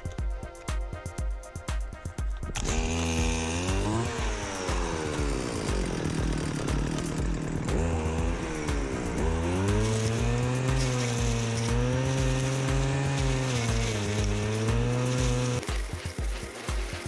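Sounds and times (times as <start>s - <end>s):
brush cutter cutting grass: 2.4s - 17.0s.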